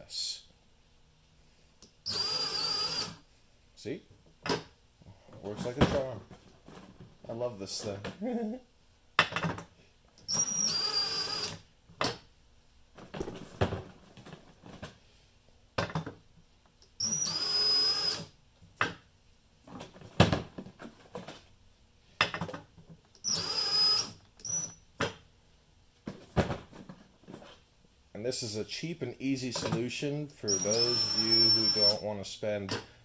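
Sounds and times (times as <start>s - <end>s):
drill motor whine: 2.1s - 3.2s, 10.3s - 11.6s, 17.0s - 18.3s, 23.2s - 24.8s, 30.5s - 32.0s.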